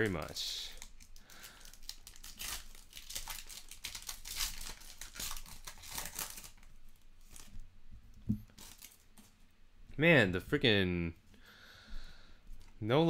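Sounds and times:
foil wrapper crinkling and tearing: 0:00.0 - 0:07.6, 0:08.5 - 0:09.3.

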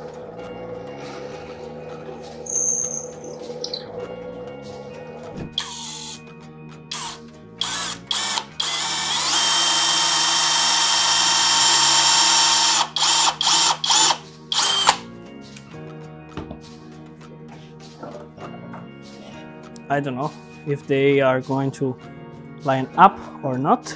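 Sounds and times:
drill boring into wood: 0:05.6 - 0:06.2, 0:06.9 - 0:15.0.

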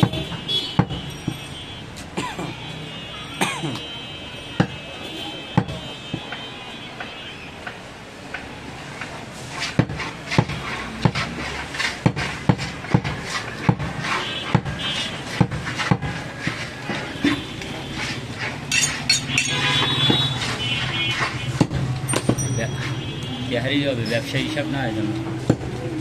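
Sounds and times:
knife chopping meat on wood: 0:05.5 - 0:06.3, 0:09.6 - 0:17.4.

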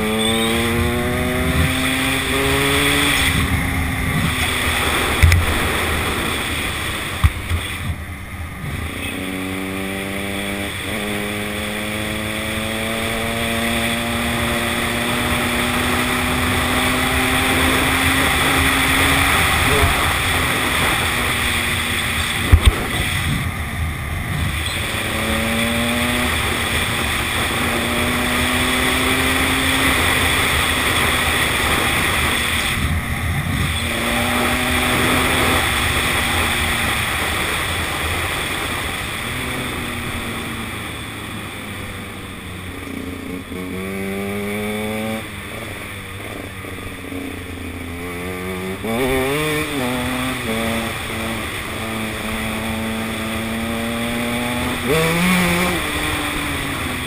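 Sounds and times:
motorcycle engine revving: 0:00.0 - 0:57.0
wind rush on microphone: 0:18.4 - 0:25.2.

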